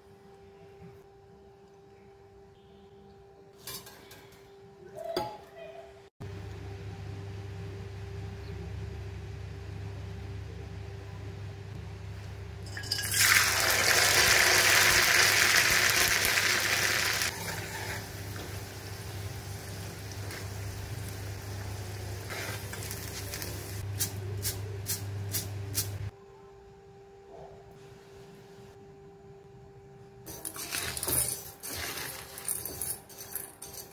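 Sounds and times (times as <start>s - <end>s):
steady low hum: 6.2s - 13.0s, 17.3s - 33.9s
lentils sizzling in hot oil: 12.8s - 25.4s, 30.3s - 33.9s.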